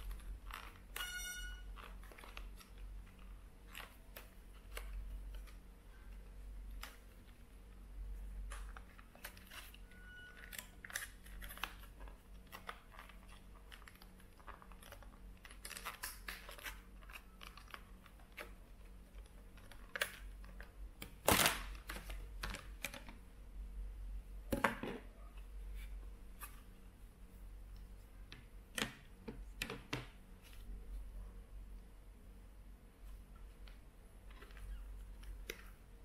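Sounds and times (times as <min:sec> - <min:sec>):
plastic packaging crinkling: 0:00.0 - 0:05.7, 0:08.4 - 0:23.2
sharp plastic crack: 0:21.0 - 0:23.2.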